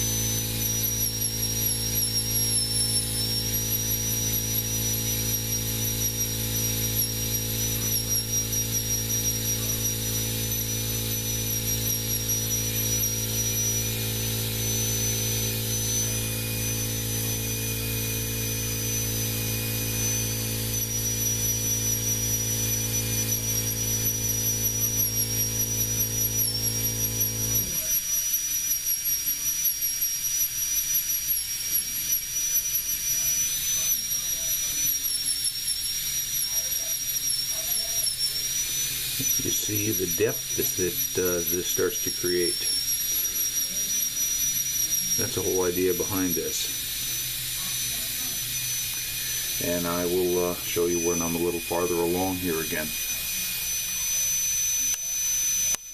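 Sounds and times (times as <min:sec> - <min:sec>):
steady low hum: 0:00.0 - 0:27.9, 0:36.4 - 0:55.9
air-turbine handpiece whining: 0:00.0 - 0:55.9.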